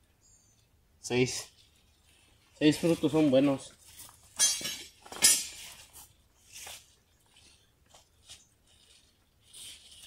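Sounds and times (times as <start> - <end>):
plant leaves rustling: 1.2 - 4.4, 5.0 - 10.0.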